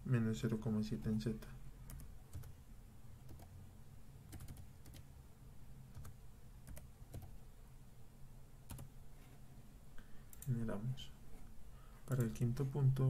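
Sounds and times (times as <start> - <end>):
keyboard keystrokes: 4.3 - 5.0.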